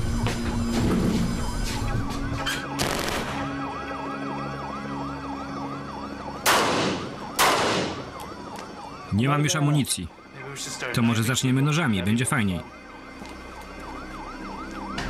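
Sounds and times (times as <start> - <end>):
police siren yelping: 0.0 - 15.0
gunshots: 2.8 - 3.5, 6.4 - 8.1.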